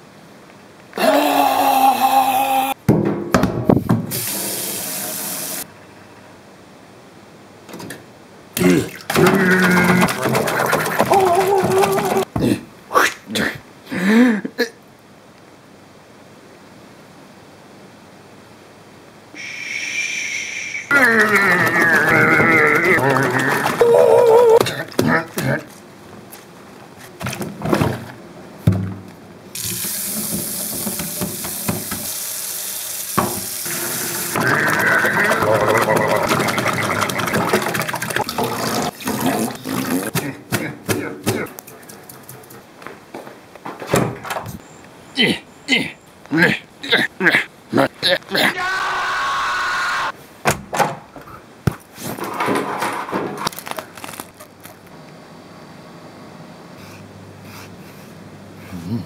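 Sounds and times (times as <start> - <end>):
tap water running into sink: 4.1 - 5.6, 8.9 - 12.2, 29.6 - 39.2
fur sloshing in soapy water: 34.6 - 38.3.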